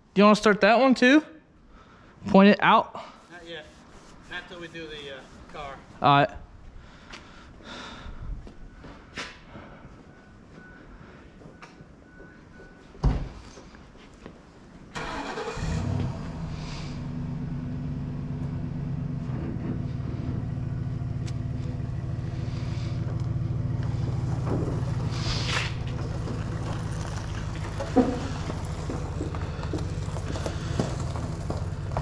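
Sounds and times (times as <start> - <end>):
vehicle engine running: 15.3 - 32.0.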